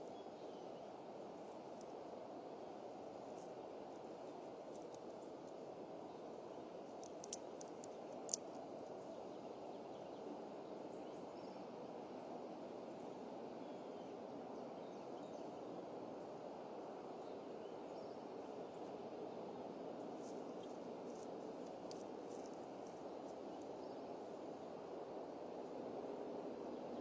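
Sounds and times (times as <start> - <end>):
outdoor background rush: 0.0 - 27.0
sharp clicks and twig cracks: 4.7 - 5.6, 6.9 - 9.0, 20.2 - 23.8.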